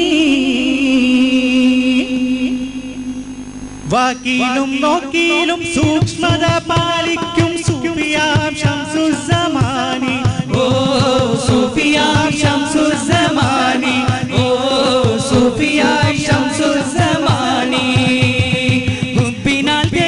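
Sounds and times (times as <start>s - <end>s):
sustained drone: 0.0s - 19.7s
voices singing ornamented lines: 0.0s - 20.0s
hand drum beat: 5.8s - 20.0s.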